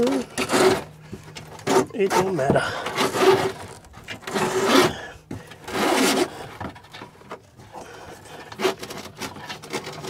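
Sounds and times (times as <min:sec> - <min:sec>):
wires and hands scraping on trim: 0:00.0 - 0:10.0.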